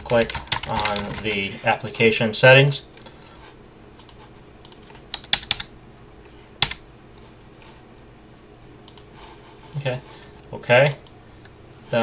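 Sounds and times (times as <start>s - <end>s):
keyboard keystrokes: 4.0s - 5.7s.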